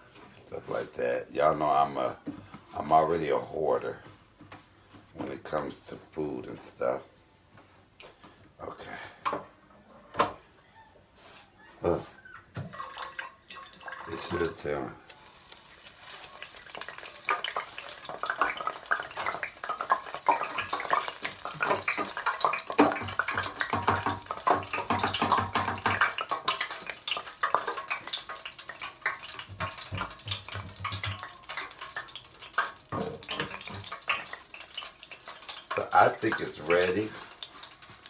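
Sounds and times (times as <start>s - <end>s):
tap water splashing in sink: 18.2s - 34.9s
small knocks: 29.1s - 31.8s.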